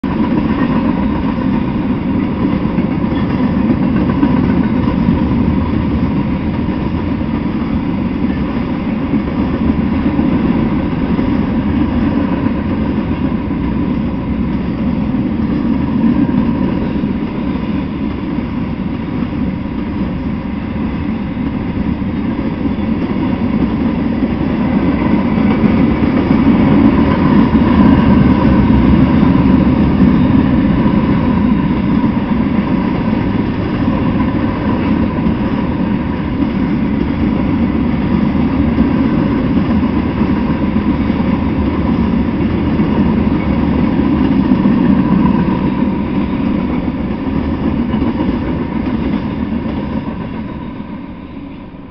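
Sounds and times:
freight train wheels rumbling on rails: 0.0s - 51.9s.

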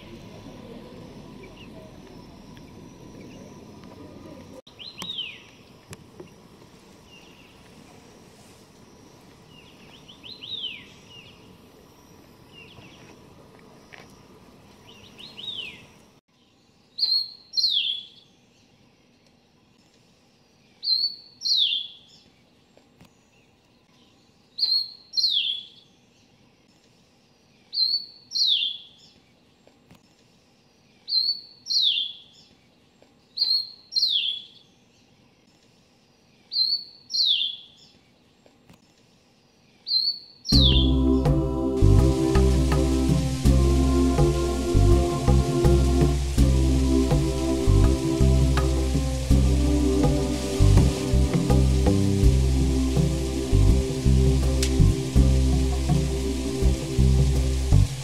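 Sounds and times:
steady background hiss: 0.0s - 58.0s
falling whistled bird notes: 40.0s - 41.2s.

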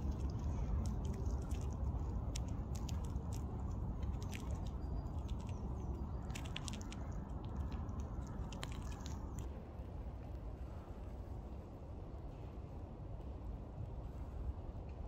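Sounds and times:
crisp clicks and crackles: 0.0s - 9.6s
low rumble: 0.0s - 15.0s.

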